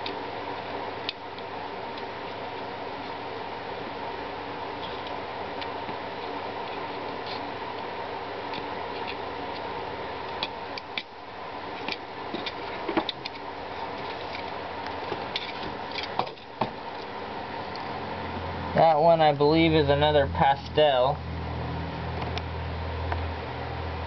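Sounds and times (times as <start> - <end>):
steady mechanical hum: 0.0 - 24.0.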